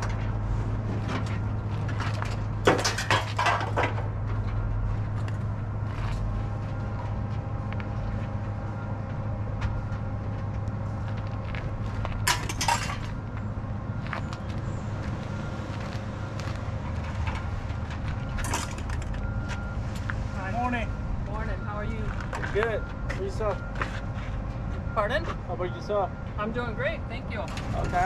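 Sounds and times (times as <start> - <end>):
low engine drone: 0.0 - 28.0
items knocking and clattering: 1.0 - 4.5, 12.2 - 13.1, 17.2 - 19.2.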